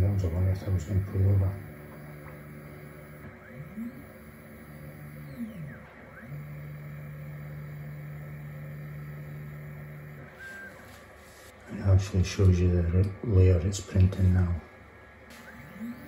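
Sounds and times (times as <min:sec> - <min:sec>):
stepper motor whining: 0:00.0 - 0:11.5, 0:15.3 - 0:16.0.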